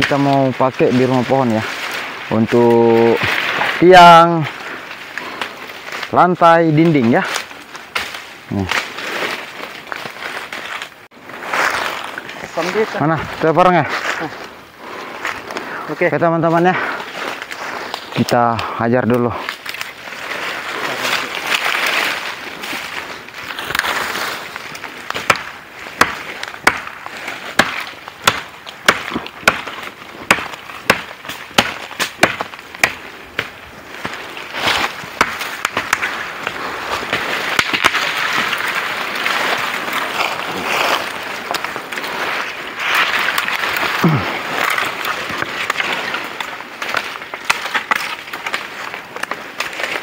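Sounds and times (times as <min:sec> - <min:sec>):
machete chopping tree trunk: 0:25.1 - 0:39.7.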